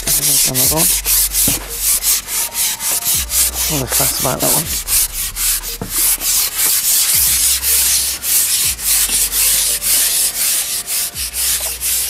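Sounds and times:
microphone rubbing and scratching: 0.0s - 12.0s.

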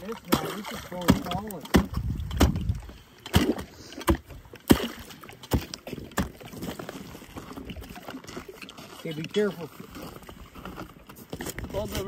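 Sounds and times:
slushy water: 0.0s - 12.0s
ice bar striking ice: 0.3s - 6.7s.

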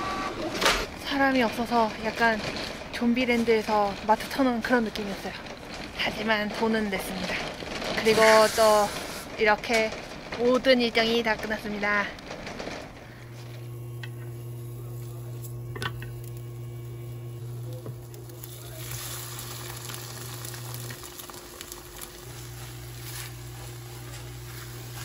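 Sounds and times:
rice sizzling in a frying pan: 8.0s - 9.3s, 13.4s - 25.0s
steady low hum: 12.0s - 25.0s.

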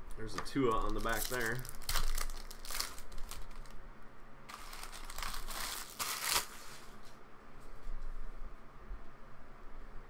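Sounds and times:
plastic wrapper crinkling: 0.7s - 3.8s, 4.5s - 7.0s.

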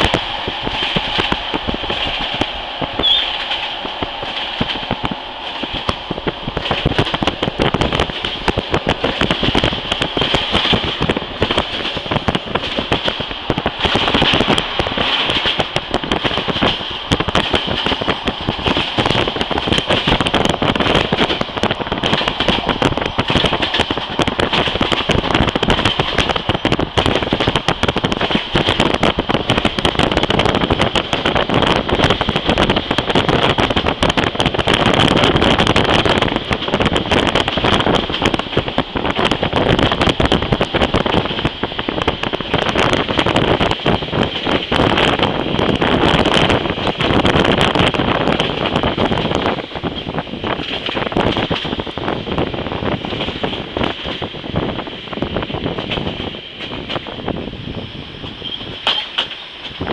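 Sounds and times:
train wheels rattling on rails: 0.0s - 59.9s.

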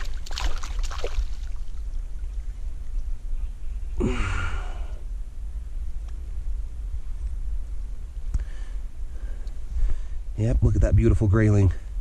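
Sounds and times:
steady low rumble: 0.0s - 12.0s
person sighing: 4.0s - 5.0s.

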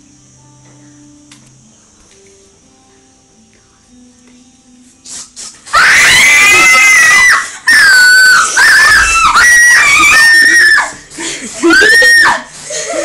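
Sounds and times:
girls screaming: 5.7s - 12.5s.

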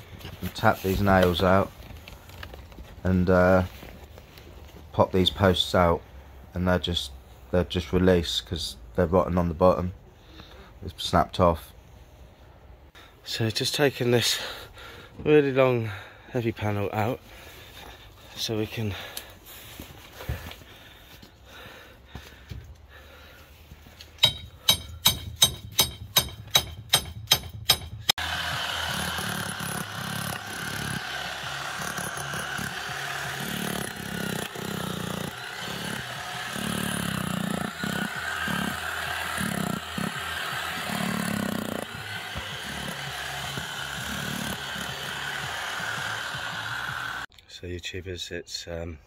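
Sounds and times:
breaker hammer chiselling concrete: 24.2s - 47.3s.

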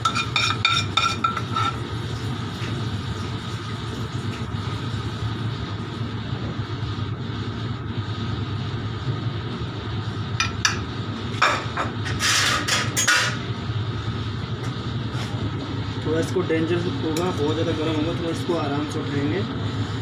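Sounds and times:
kitchenware clattering: 0.0s - 1.8s
kitchen machine hum: 0.0s - 20.0s.

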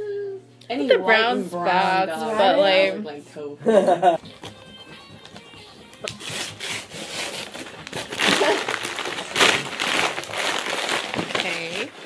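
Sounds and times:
wrapping paper tearing and crinkling: 6.0s - 12.0s.

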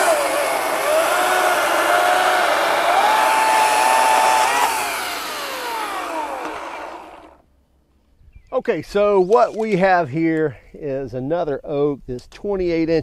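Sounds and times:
electric chainsaw cutting log: 0.0s - 7.4s.

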